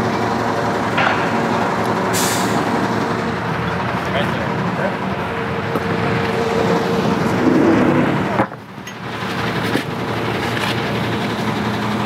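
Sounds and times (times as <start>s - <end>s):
forklift engine running: 0.0s - 12.0s
steady whine: 0.8s - 9.0s.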